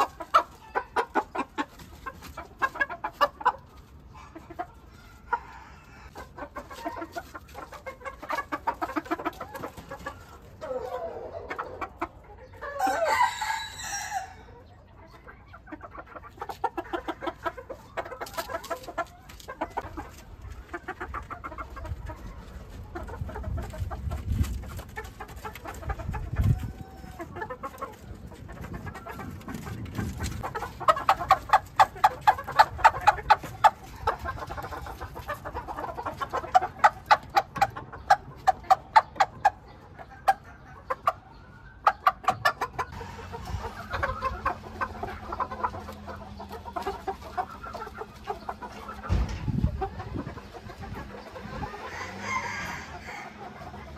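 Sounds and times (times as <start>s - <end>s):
chickens clucking: 0.0s - 53.9s
rooster crow: 12.7s - 14.5s, 51.7s - 53.5s.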